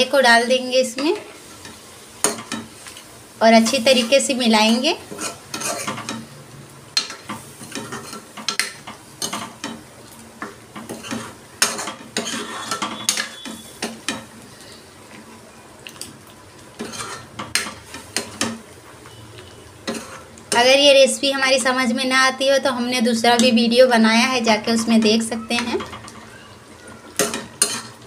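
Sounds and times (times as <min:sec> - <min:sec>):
food sizzling: 0:00.0 - 0:28.0
metal spoon scraping a pan: 0:03.6 - 0:06.3, 0:07.0 - 0:09.8, 0:10.8 - 0:14.8, 0:16.8 - 0:20.7, 0:27.2 - 0:28.0.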